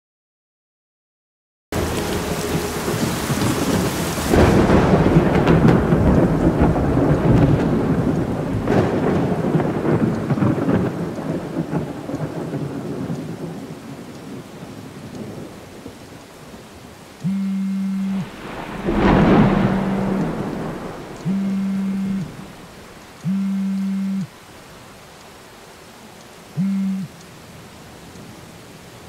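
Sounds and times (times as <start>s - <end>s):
rolling thunder: 1.8s - 16.1s, 18.2s - 23.0s
heavy rain: 1.8s - 29.0s
steady low buzz: 17.2s - 24.3s.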